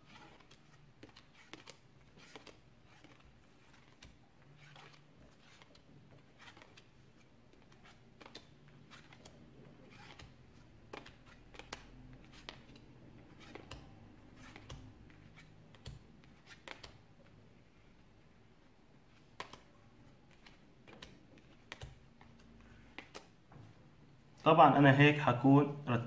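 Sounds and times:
playing cards clicking and slapping: 0:00.1 - 0:05.8, 0:06.4 - 0:06.8, 0:07.6 - 0:17.0, 0:19.2 - 0:19.7, 0:20.3 - 0:23.4.

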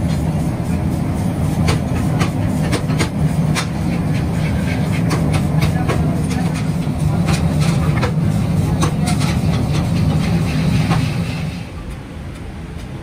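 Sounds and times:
low machine drone: 0:00.0 - 0:13.0
sharp clicks and knocks: 0:01.6 - 0:11.2.

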